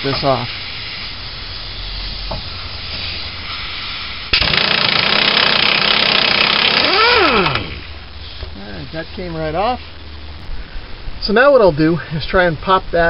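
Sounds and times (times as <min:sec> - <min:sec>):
air hiss from leaking fitting: 0:00.0 - 0:04.4, 0:07.3 - 0:08.6
impact wrench hammering: 0:04.3 - 0:07.8.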